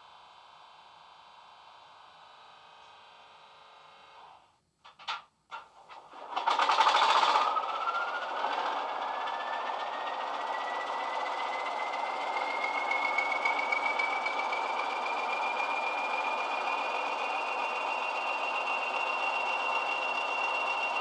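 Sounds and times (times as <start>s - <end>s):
turbocharger whine: 6.1s - 21.0s
diesel engine through small speaker: 6.5s - 21.0s.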